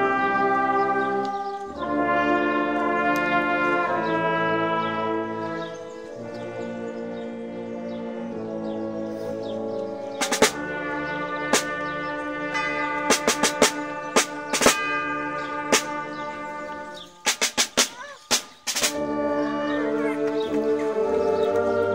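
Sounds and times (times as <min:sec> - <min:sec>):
wind band brass chords: 0:00.0 - 0:21.9
tubular bells ringing: 0:09.6 - 0:17.3
percussion strikes: 0:10.2 - 0:10.8, 0:11.4 - 0:16.5, 0:17.2 - 0:19.4.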